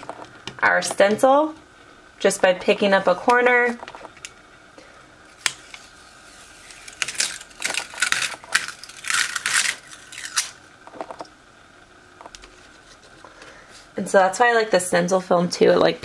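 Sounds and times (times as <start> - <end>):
stencil film peeling off: 5.4 - 10.6.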